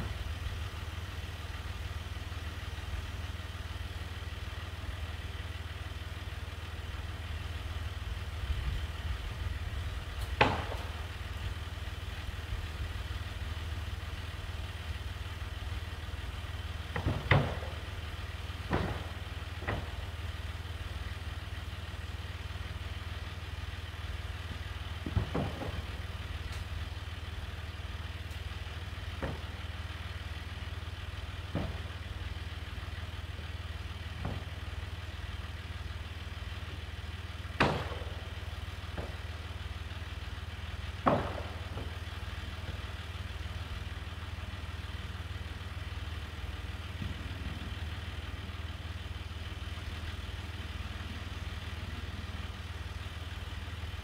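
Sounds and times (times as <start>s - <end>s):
tractor engine idling: 0.0s - 54.0s.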